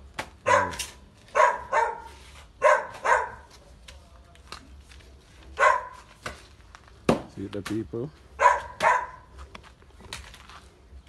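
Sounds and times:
dog barking: 0:00.4 - 0:03.5, 0:05.6 - 0:06.0, 0:08.4 - 0:09.3.

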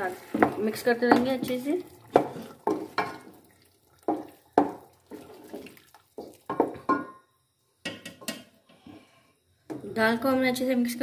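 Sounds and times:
spoon stirring thick paste: 0:00.0 - 0:03.4.

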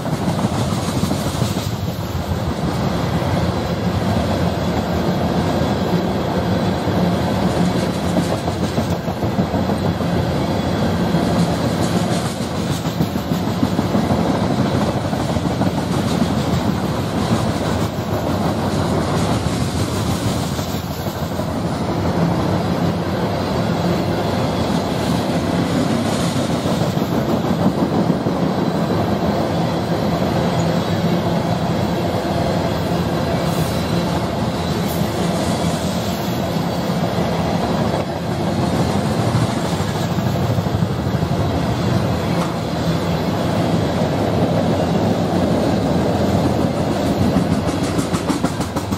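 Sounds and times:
train wheels rumbling on rail: 0:00.0 - 0:48.9
wheels clicking over rail joints: 0:44.3 - 0:48.9.

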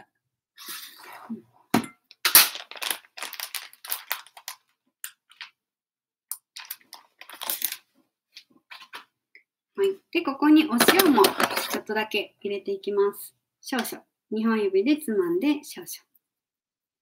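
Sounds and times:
packet rustling and crinkling: 0:02.3 - 0:05.6, 0:06.4 - 0:09.1, 0:10.8 - 0:11.9.

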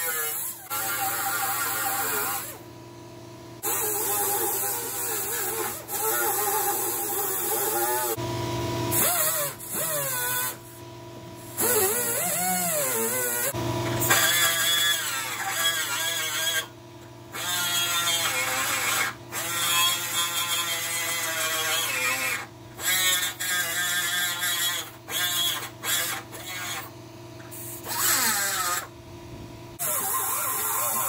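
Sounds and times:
die grinder grinding steel: 0:00.0 - 0:02.6, 0:03.6 - 0:08.2, 0:08.9 - 0:10.8, 0:11.4 - 0:28.9, 0:29.8 - 0:31.0.

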